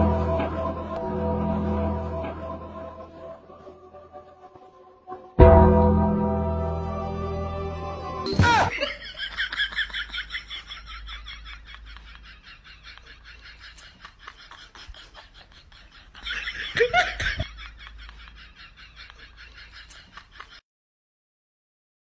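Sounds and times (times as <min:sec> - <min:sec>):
high-pitched laughter: 0:08.4 - 0:20.6.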